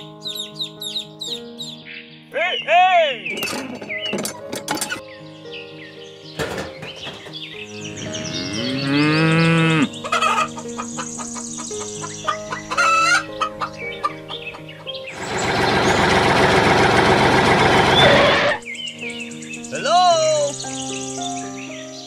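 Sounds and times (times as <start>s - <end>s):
background music melody: 0.0s - 22.0s
cow mooing: 7.9s - 10.0s.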